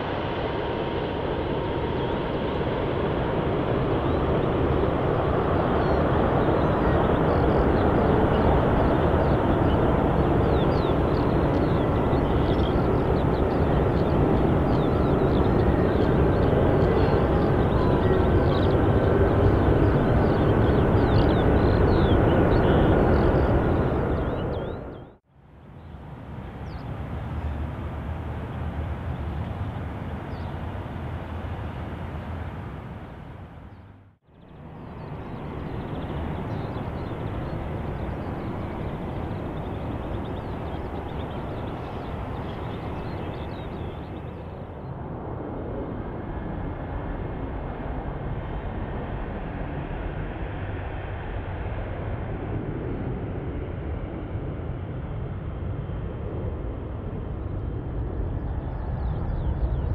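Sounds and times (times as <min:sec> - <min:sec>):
jet engines rumbling: 0:00.0 - 0:59.9.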